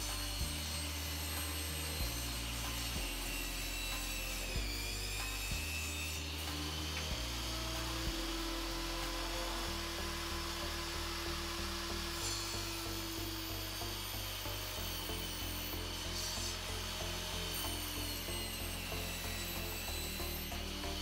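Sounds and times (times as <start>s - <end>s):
background music with bass pulse: 0.0s - 21.0s.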